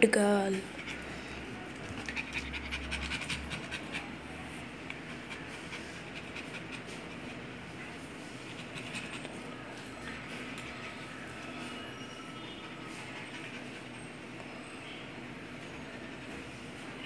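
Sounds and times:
puppy panting: 0:00.6 - 0:07.6, 0:08.3 - 0:09.7.

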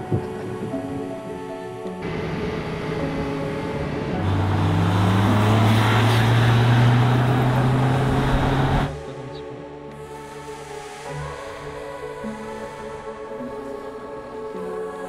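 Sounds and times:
car engine accelerating hard: 0:02.0 - 0:08.9.

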